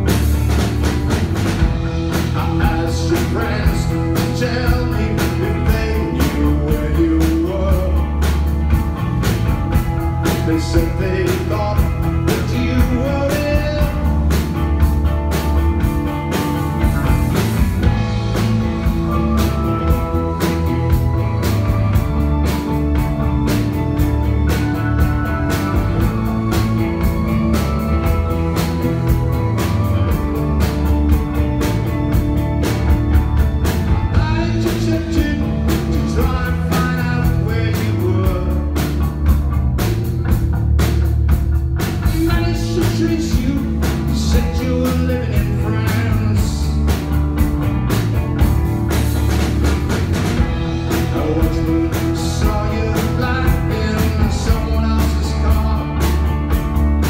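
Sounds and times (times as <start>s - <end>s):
live rock band playing: 0.0s - 57.0s
man singing: 2.0s - 8.5s, 10.2s - 14.5s, 34.1s - 39.0s, 42.0s - 47.0s, 50.7s - 56.5s.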